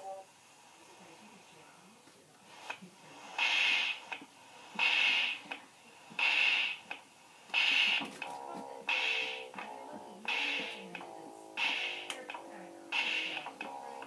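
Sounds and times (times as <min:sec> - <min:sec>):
keyboard rushing noise bursts: 0:04.8 - 0:05.5, 0:06.2 - 0:06.9, 0:07.5 - 0:08.3, 0:12.9 - 0:13.6.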